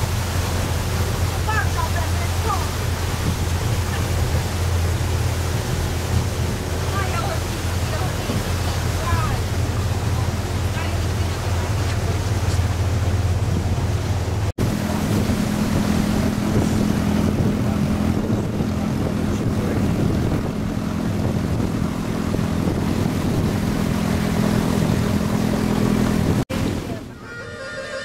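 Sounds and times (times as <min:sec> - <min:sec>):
boat engine droning: 0:00.0 - 0:28.0
water churning along hull: 0:00.0 - 0:28.0.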